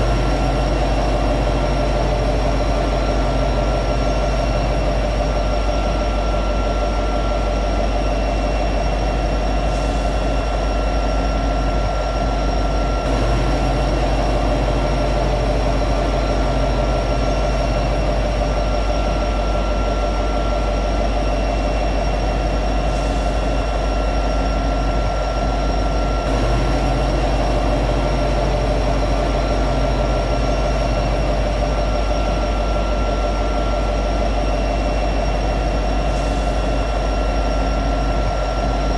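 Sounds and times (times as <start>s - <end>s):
locomotive diesel engine idling: 0.0s - 7.8s, 13.1s - 23.8s, 26.3s - 36.9s
constant whining tones: 0.0s - 38.9s.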